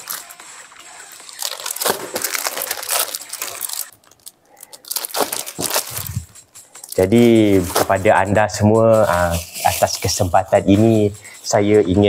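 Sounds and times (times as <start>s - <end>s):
plastic packaging crinkling: 0.0s - 8.0s.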